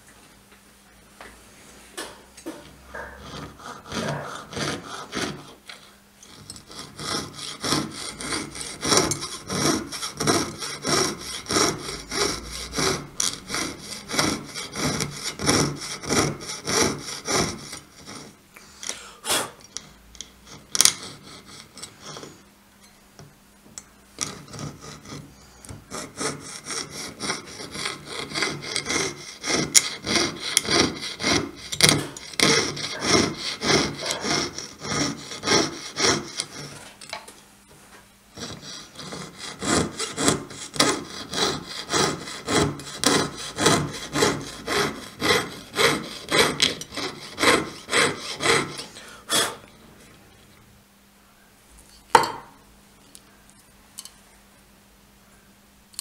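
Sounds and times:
saw rasping through metal: 2.8 - 18.4, 19.7 - 22.4, 24.2 - 36.9, 38.3 - 49.6.

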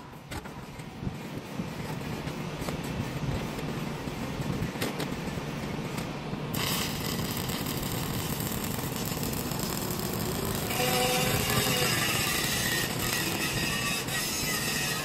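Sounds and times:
welding arc hissing: 6.5 - 15.0.

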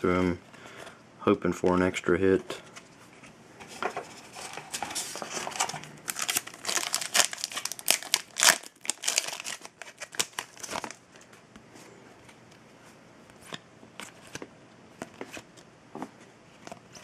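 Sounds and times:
foil wrapper crinkling and tearing: 4.5 - 11.0.

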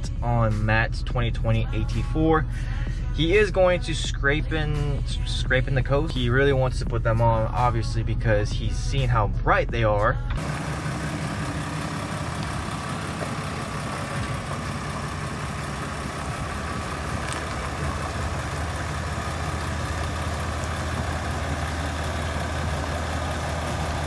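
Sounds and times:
truck engine idling: 10.2 - 24.0.

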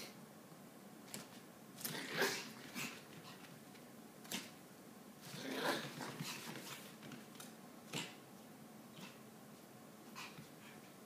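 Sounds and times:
dog paws scuffing on mat: 5.3 - 7.6.

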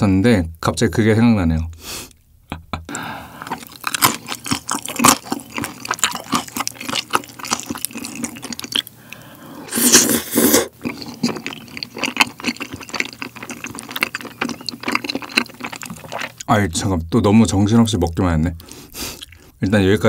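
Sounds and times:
wet chewing: 3.0 - 16.5, 17.9 - 19.6
wet slurp: 9.6 - 16.4.

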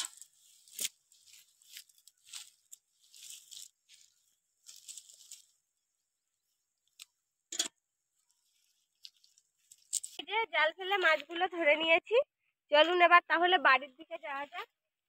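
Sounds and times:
net and straw rustling: 0.0 - 7.0, 8.1 - 10.2.

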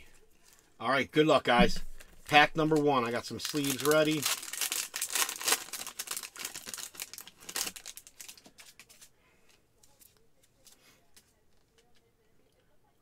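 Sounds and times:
cards rustling: 2.0 - 12.0
foil wrapper tearing and crinkling: 2.7 - 9.1.

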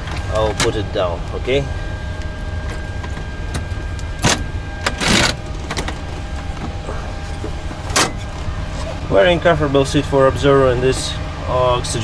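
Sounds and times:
steady low hum: 0.0 - 12.0
folding seat clacking and rattling: 2.2 - 9.0.

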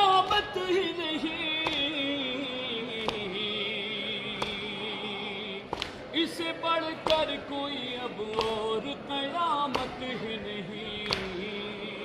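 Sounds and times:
man singing a lament: 0.0 - 12.0
chest-beating slaps: 3.0 - 3.3.

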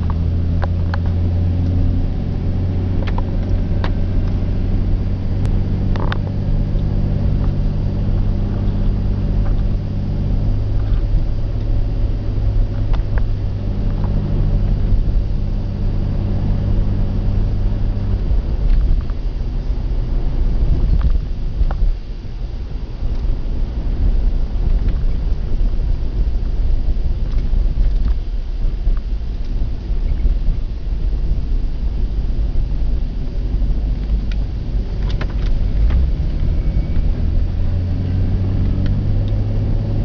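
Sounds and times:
car engine and road noise: 0.0 - 40.0.

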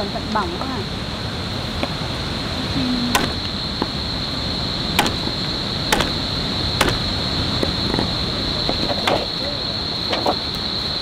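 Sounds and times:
low background rumble: 0.0 - 10.0
sharp knocks: 3.1 - 3.9, 5.0 - 7.2.

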